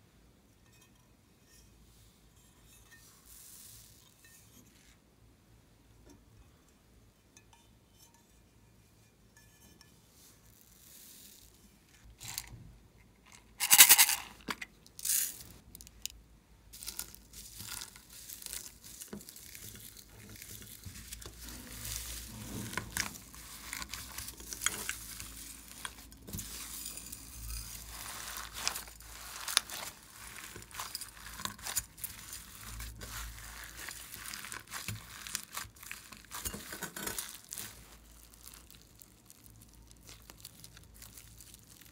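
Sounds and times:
slime kneaded with foam beads: 16.7s - 41.9s.

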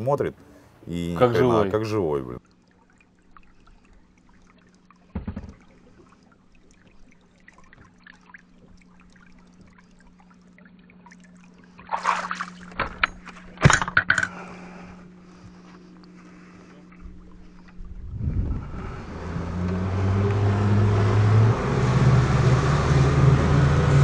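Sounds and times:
steady low hum: 0.0s - 19.5s
water trickling and sloshing: 0.0s - 21.9s
thump: 5.1s - 5.6s.

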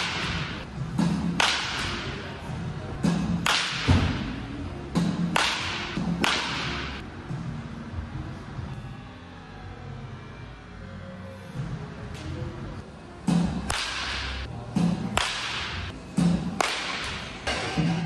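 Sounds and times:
baseball bat cracking balls: 0.0s - 2.1s, 3.0s - 4.3s, 5.0s - 7.0s, 13.3s - 18.0s.

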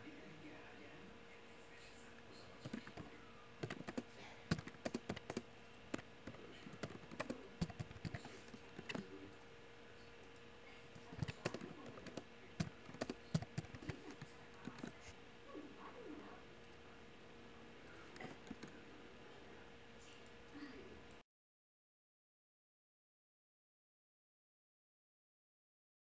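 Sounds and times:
keyboard typing: 2.6s - 9.2s, 10.2s - 15.0s, 18.2s - 18.8s.

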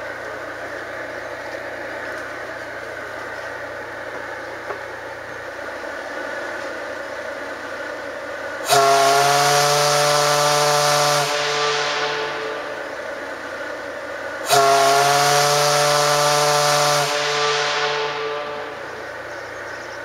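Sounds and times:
steam hiss: 0.0s - 20.0s
steam whistle blast: 8.6s - 20.0s
low background rumble: 11.3s - 14.8s, 17.1s - 20.0s.

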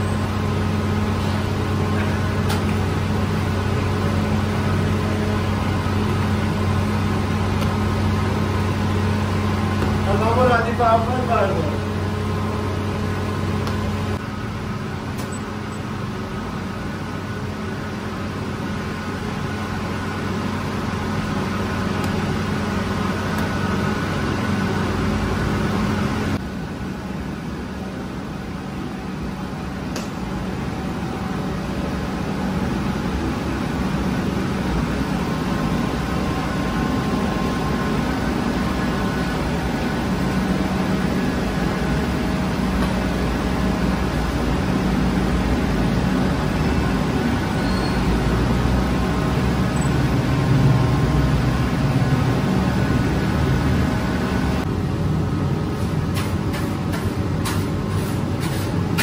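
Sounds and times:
bread oven rumble: 29.2s - 59.0s.

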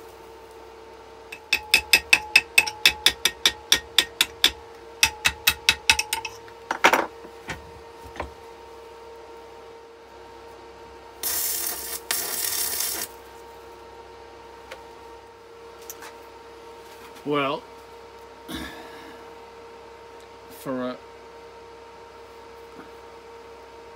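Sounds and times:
steady electrical hum: 0.0s - 23.9s
rapid light metal tapping: 1.3s - 6.3s
welding arc hiss and crackle: 11.2s - 13.4s.

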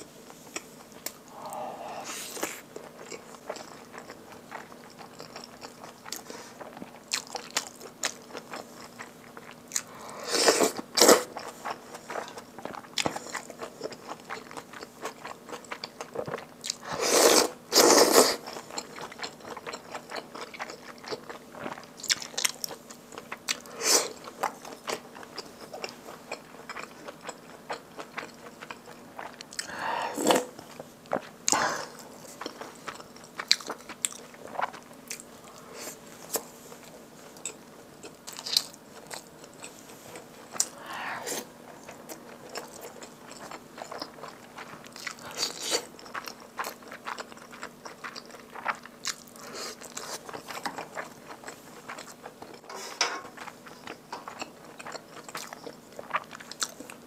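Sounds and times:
wet chewing and mouth smacks: 41.7s - 52.7s, 53.3s - 57.0s.

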